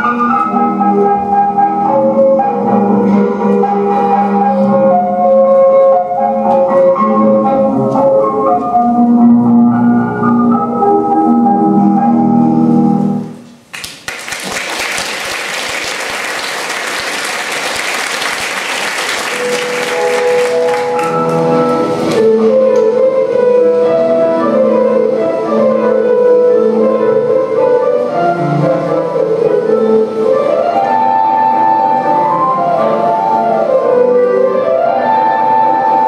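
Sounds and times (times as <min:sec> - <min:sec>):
audience applauding: 0:13.7 - 0:22.2.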